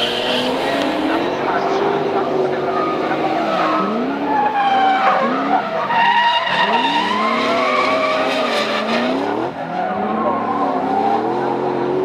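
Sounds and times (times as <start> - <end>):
car engines revving: 0.0 - 12.0
tyre squeal: 2.8 - 11.4.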